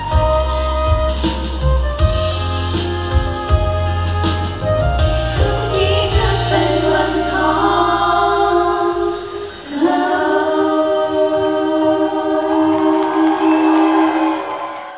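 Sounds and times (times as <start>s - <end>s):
pop music with strong bass: 0.0s - 10.8s
singers holding long note: 5.2s - 14.9s.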